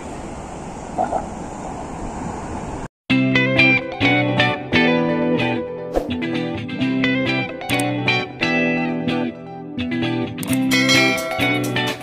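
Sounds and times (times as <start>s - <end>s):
instrumental music with plucked guitar: 3.1s - 12.0s.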